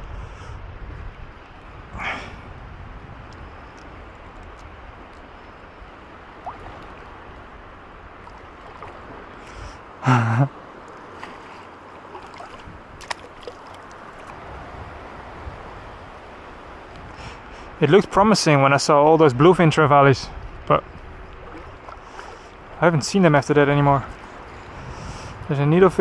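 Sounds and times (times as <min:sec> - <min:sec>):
shallow sea water washing: 0:03.4 - 0:10.0, 0:10.7 - 0:14.4, 0:21.0 - 0:23.4.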